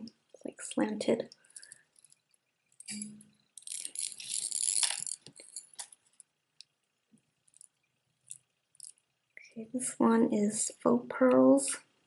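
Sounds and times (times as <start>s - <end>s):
jewelry jangling and clicking: 3.6s - 6.0s.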